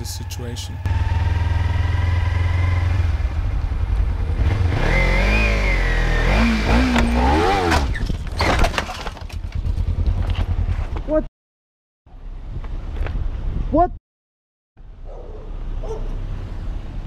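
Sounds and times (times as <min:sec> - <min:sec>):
motorcycle engine running: 0:00.0 - 0:08.2, 0:09.2 - 0:11.3
motorcycle crashing over: 0:06.8 - 0:10.9.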